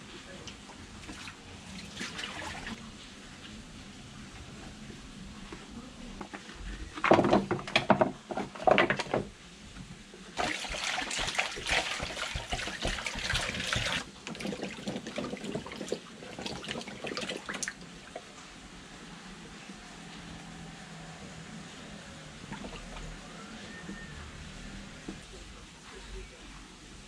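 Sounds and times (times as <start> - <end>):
water pouring from jug: 10.4 - 17.8, 22.5 - 23.2.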